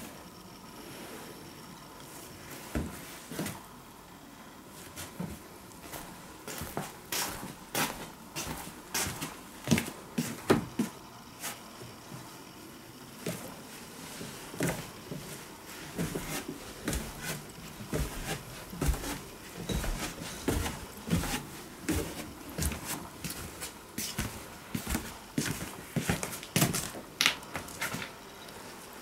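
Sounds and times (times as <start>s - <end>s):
footsteps on wooden stairs: 14.5s - 28.1s.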